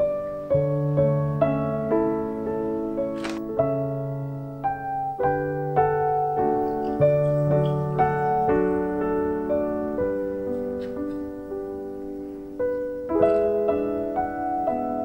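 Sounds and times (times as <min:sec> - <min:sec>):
soft piano music: 0:00.0 - 0:15.0.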